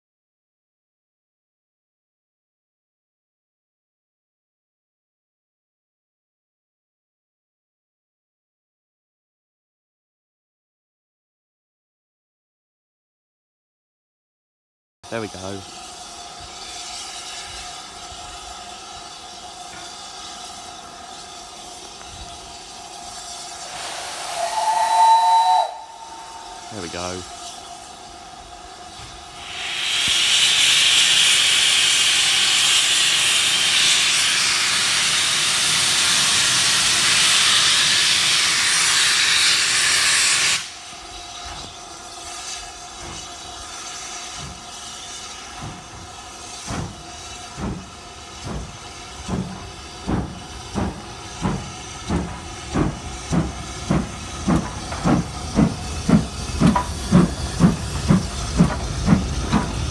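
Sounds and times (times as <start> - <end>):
steam locomotive chuffing: 15.0 - 59.9
loud steam hiss: 15.1 - 59.9.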